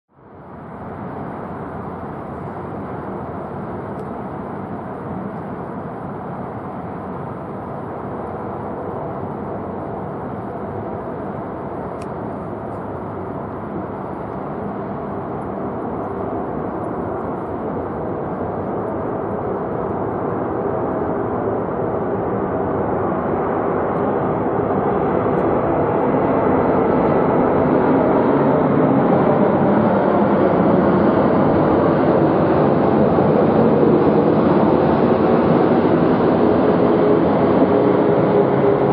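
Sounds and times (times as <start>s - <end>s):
jet airliner rumble: 0.1s - 38.9s.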